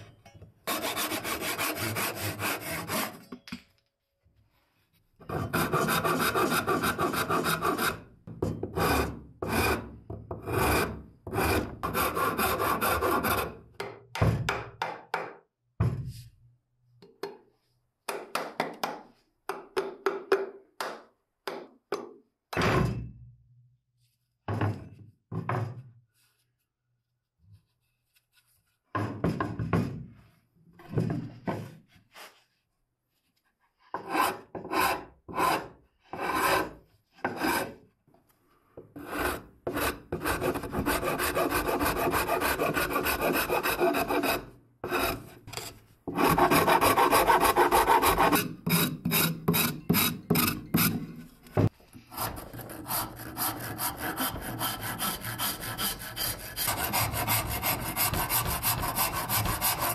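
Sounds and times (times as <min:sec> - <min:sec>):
rasp scraping wood: 0:39.0 - 0:51.0, 0:52.1 - 0:59.9.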